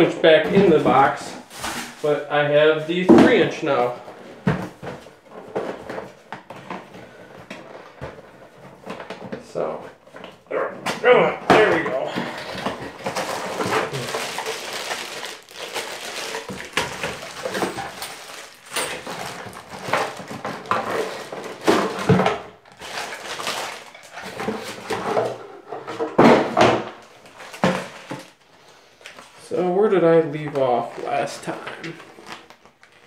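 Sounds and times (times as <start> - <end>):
packaging rustling and crinkling: 0.9 - 2.1, 11.6 - 25.4, 26.9 - 29.5, 30.4 - 33.0.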